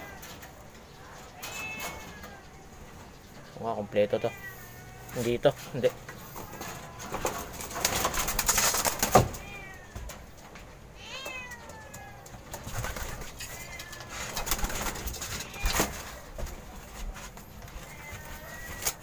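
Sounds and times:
pigeon wings clattering: 6.4s - 9.5s, 12.3s - 16.7s.

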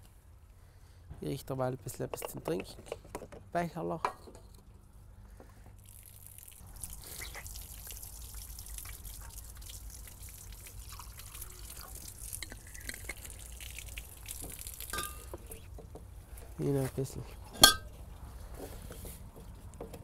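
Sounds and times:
water trickling from tap: 5.9s - 15.9s.

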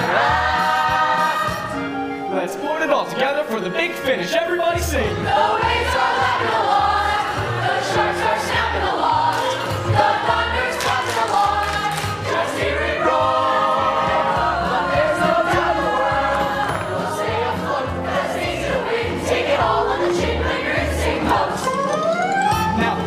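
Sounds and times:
young voices singing in chorus: 0.0s - 1.8s, 5.1s - 21.9s
instrumental accompaniment with beat: 9.3s - 23.0s.

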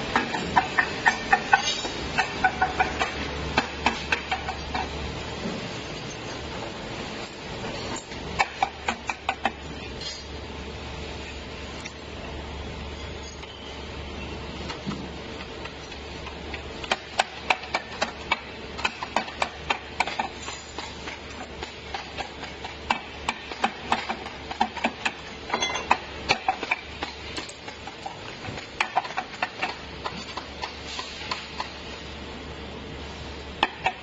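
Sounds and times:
low machine hum: 0.0s - 34.0s
metal tubes clicking and knocking: 15.6s - 31.7s.

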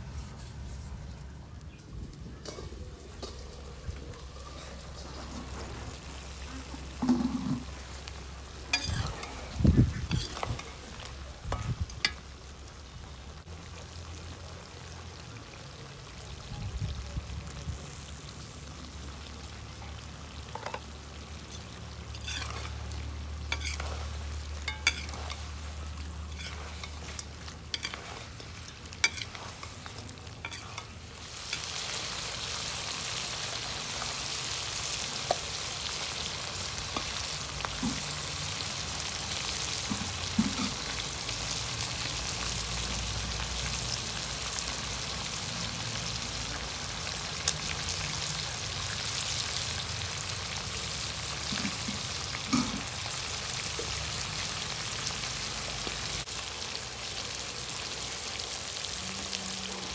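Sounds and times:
chicken sizzling in a wok: 0.0s - 59.9s
metal spatula scraping pan: 8.7s - 10.8s, 21.5s - 25.7s, 26.3s - 31.7s.

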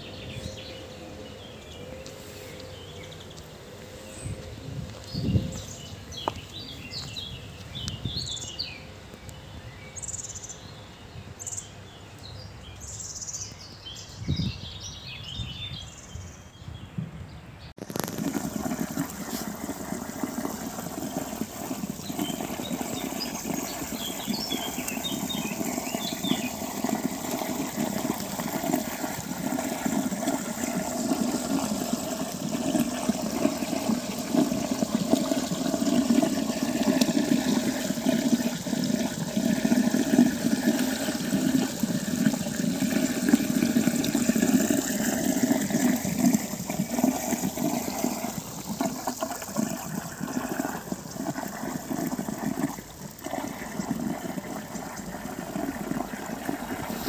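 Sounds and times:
stream flowing over pebbles: 17.8s - 57.0s.

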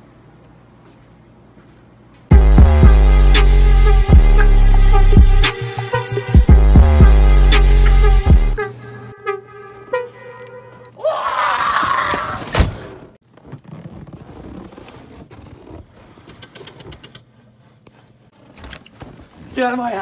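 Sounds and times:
music notes: 2.3s - 11.0s
man screaming: 11.0s - 12.6s.

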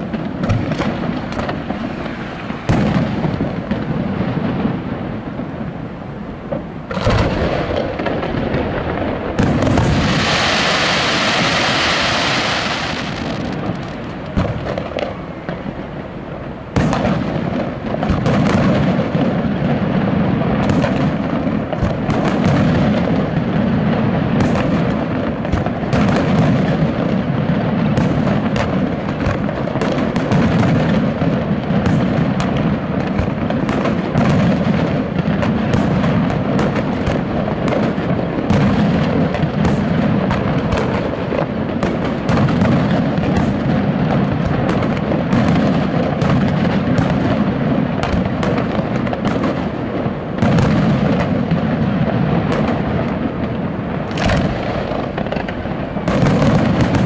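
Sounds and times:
high firework hiss: 0.0s - 57.0s
rapid sharp firework reports: 0.0s - 57.0s
fireworks shells bursting: 6.4s - 16.0s, 52.4s - 57.0s.

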